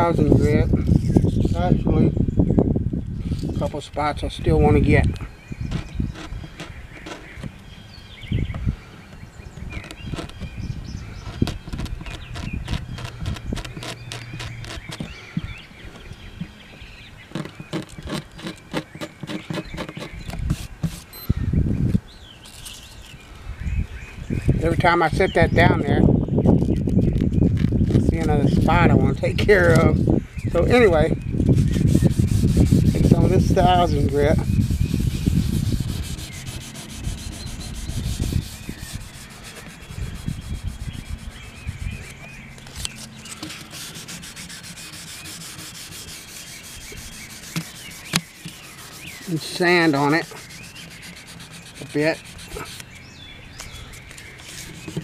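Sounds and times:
sandpaper rubbing on wood: 0.0 - 1.6, 9.8 - 10.4, 11.2 - 15.1, 17.4 - 21.1, 30.8 - 52.8, 53.9 - 55.0.

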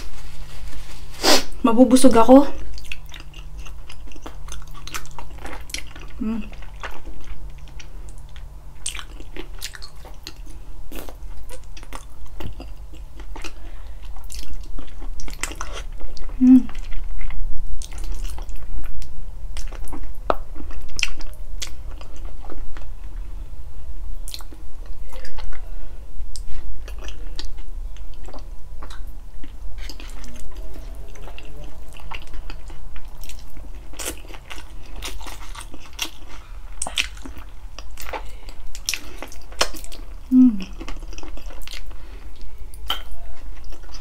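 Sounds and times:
chewing and biting: 26.3 - 44.0.

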